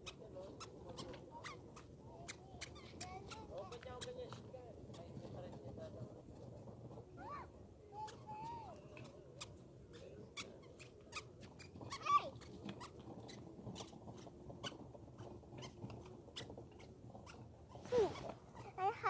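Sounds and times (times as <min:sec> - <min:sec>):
low steady background noise: 0:00.0 - 0:19.0.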